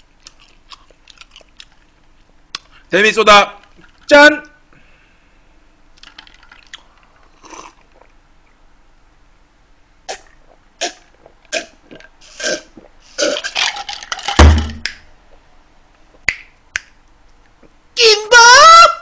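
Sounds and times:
man gulping soda: 6.0 - 8.2, 10.1 - 14.9.

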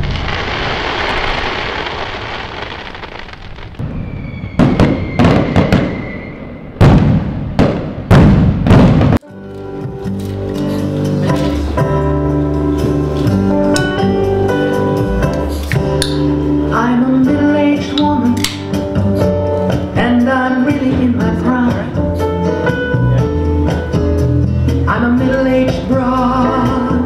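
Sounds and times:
firework whistle: 0.0 - 7.1
sharp firework bangs: 0.0 - 9.2
fireworks bursting and crackling: 0.0 - 9.3
electronic keyboard chords: 9.2 - 21.2.

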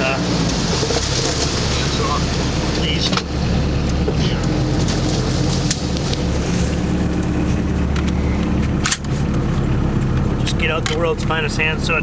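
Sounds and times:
diesel engine running: 0.0 - 12.0
branches scraping and snapping: 0.4 - 2.4, 4.4 - 9.4.

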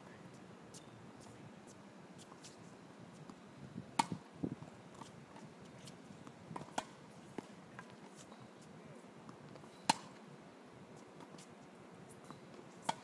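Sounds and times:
tennis ball struck by racket: 4.0 - 4.2, 6.5 - 7.0, 9.9 - 10.2.

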